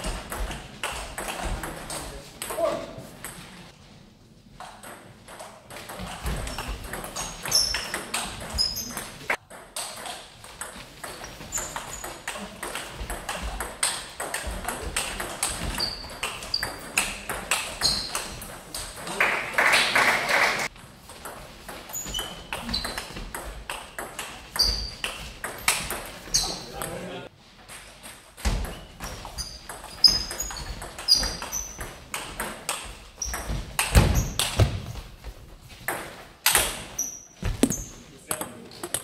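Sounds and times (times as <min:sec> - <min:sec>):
shoes squeaking on floor: 0:06.0 - 0:18.7, 0:20.7 - 0:26.8, 0:27.8 - 0:35.9, 0:36.6 - 0:39.0.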